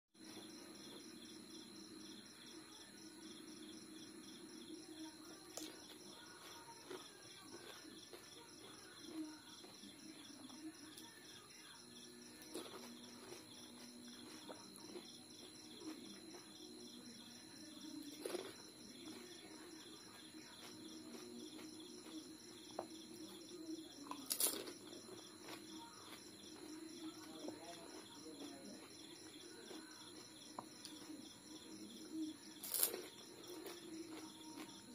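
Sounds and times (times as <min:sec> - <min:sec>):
faint steady hum: 0:00.2 - 0:34.9
crisp shells cracking: 0:24.2 - 0:24.6, 0:32.6 - 0:33.1.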